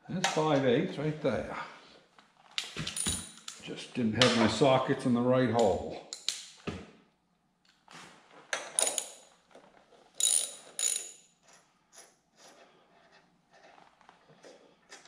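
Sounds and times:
metal clicks and clinks: 0:02.9 - 0:03.6, 0:08.6 - 0:09.3, 0:10.2 - 0:11.3.

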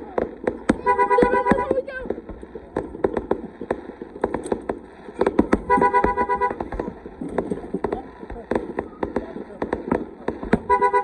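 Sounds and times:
fireworks bangs and crackling: 0:00.0 - 0:11.0
car horn honking: 0:00.8 - 0:01.8, 0:05.6 - 0:06.7, 0:10.6 - 0:11.0.

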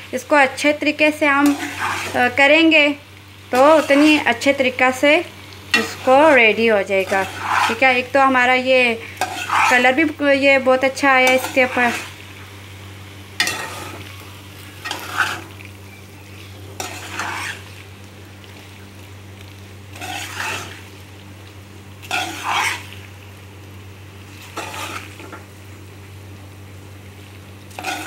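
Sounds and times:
low sizzle from pan: 0:00.0 - 0:28.0
metal spatula scraping metal pot: 0:01.4 - 0:02.3, 0:03.6 - 0:04.2, 0:07.0 - 0:07.9, 0:09.1 - 0:10.0, 0:13.4 - 0:14.0, 0:14.8 - 0:15.5, 0:16.8 - 0:17.7, 0:20.0 - 0:20.8, 0:22.0 - 0:22.9, 0:27.8 - 0:28.0.

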